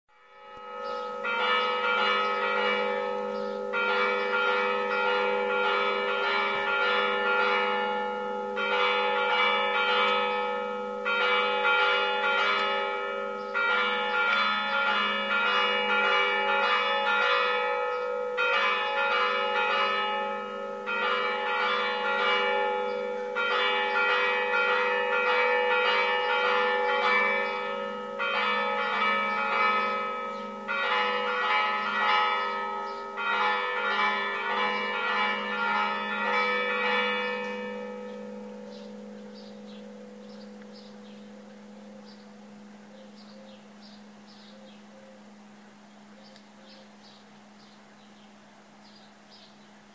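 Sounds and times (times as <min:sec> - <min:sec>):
church bells ringing: 0:00.1 - 0:46.2
low bell tone: 0:00.2 - 0:16.4, 0:27.0 - 0:44.5.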